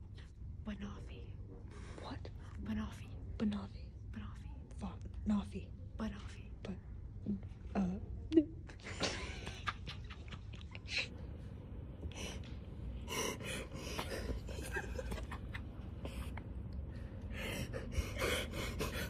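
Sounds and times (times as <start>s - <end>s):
low steady rumble: 0.0s - 19.0s
people gasping and huffing: 12.2s - 19.0s.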